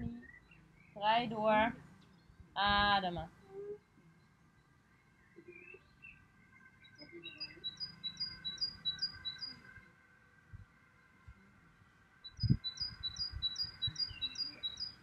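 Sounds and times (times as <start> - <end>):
songbird singing two-note phrases: 6.8 - 9.6, 12.2 - 15.0.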